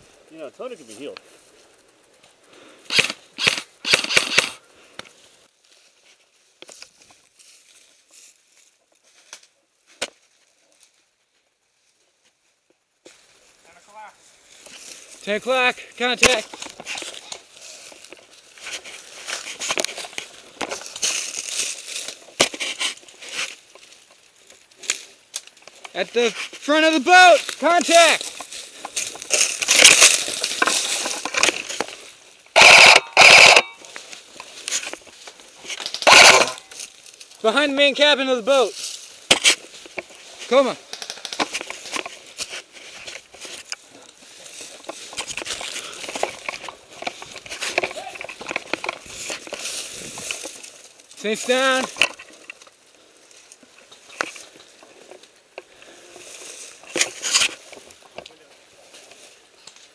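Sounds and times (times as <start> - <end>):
sharp click: 2.9 - 5.1
clothing and gear rustling: 16.4 - 25.0, 27.4 - 37.4, 41.4 - 59.9
clicks and snaps: 40.8 - 42.0.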